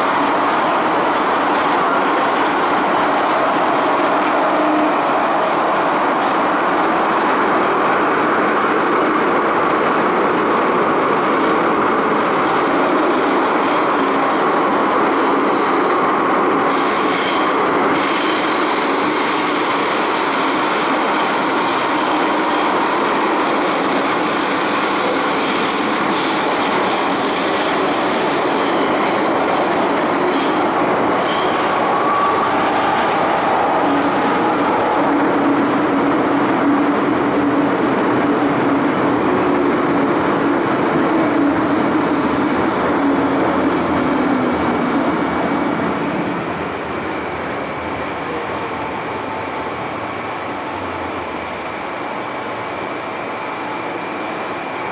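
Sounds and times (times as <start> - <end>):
train wheels rumbling on rail: 0.0 - 54.9.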